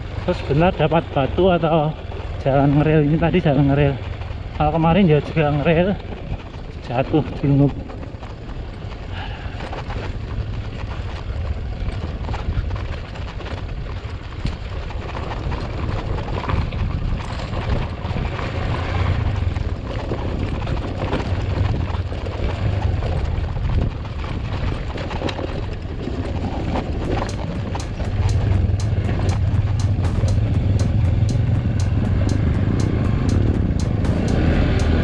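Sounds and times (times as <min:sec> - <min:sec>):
dirt bike engine: 0:26.0 - 0:35.0.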